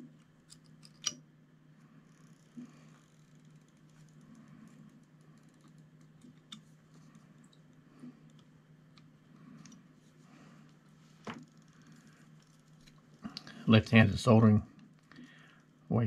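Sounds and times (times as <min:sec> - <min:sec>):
faint low hum: 0:00.0 - 0:16.0.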